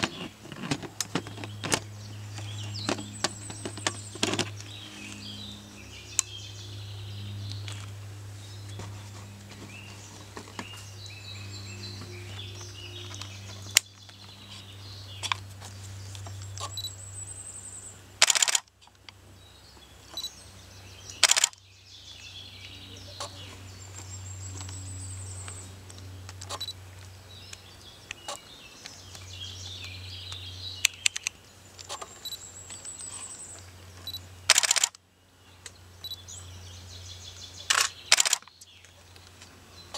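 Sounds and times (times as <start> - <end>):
birds chirping and singing: 0.0 - 39.9
low steady hum: 0.0 - 39.9
sharp clicks: 13.1 - 14.3, 18.2 - 19.2, 21.1 - 21.6, 27.5 - 33.0, 34.0 - 35.0, 37.6 - 39.3.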